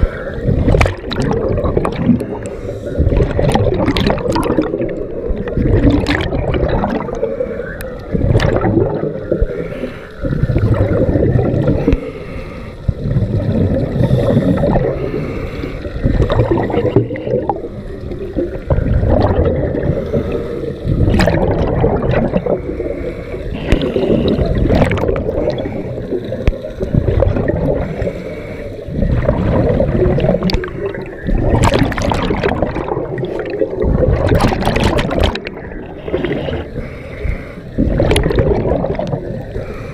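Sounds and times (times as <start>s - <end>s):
gurgling bubbles: 0.0s - 39.9s
diver breathing through regulator: 2.2s - 3.5s, 9.4s - 10.6s, 11.6s - 17.8s, 19.7s - 21.1s, 22.2s - 26.3s, 27.6s - 29.3s, 35.9s - 38.4s, 39.4s - 39.9s.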